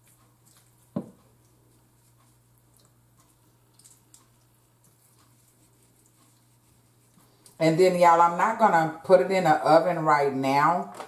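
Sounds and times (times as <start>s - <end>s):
wet squishing: 0.0s - 7.6s
low steady hum: 0.0s - 11.0s.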